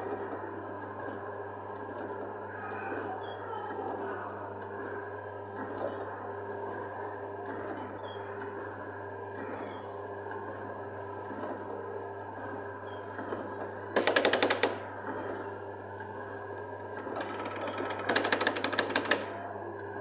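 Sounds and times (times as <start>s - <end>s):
mechanical rattling of control panel: 14.0s - 14.8s, 17.0s - 19.3s.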